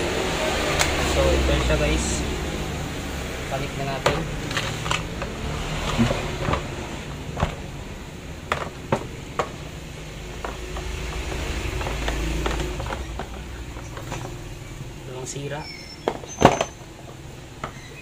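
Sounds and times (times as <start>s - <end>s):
power cord rustling and scraping: 3.6s - 7.8s, 8.4s - 15.4s
tool clattering in plastic case: 16.0s - 17.8s.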